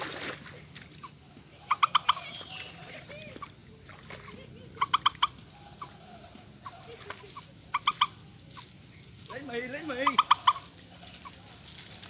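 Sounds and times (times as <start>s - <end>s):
birds calling sharp notes: 0.8s - 12.0s
lower wavering bird call: 1.5s - 3.5s, 4.8s - 8.7s, 10.0s - 11.4s.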